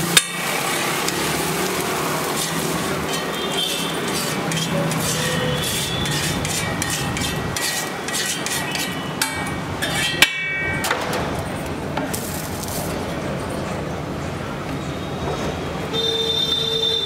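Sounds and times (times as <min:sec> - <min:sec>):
metal spatula scraping a griddle: 0:00.2 - 0:10.9
sharp metallic clank: 0:02.4 - 0:11.4.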